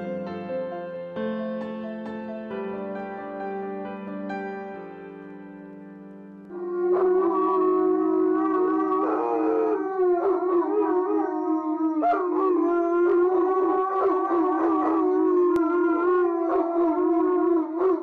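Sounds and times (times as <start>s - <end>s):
dogs howling: 6.5s - 18.0s.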